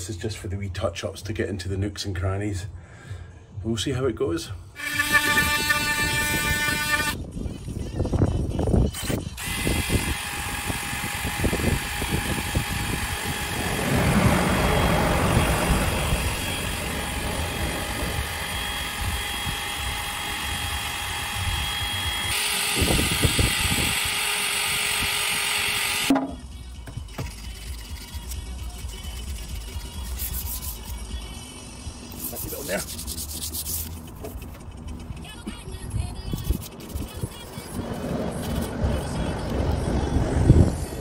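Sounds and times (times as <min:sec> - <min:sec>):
drill motor whine: 0:04.8 - 0:07.2, 0:09.0 - 0:26.2
wire brush scratching steel: 0:27.0 - 0:31.2, 0:32.0 - 0:35.4, 0:36.0 - 0:39.3.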